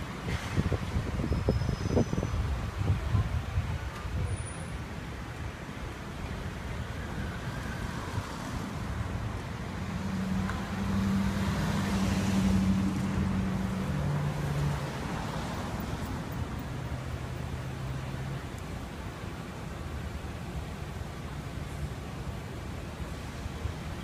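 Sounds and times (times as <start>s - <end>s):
cars driving past: 6.5s - 24.0s.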